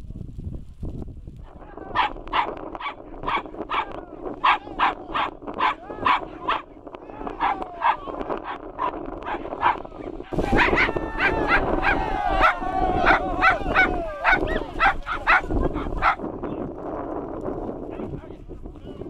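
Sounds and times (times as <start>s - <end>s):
dog barking in sharp yaps: 1.9s - 6.6s.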